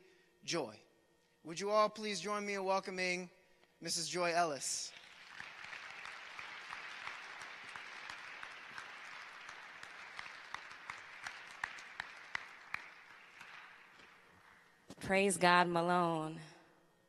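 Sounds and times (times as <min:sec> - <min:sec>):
audience applauding: 0:04.8 - 0:14.8.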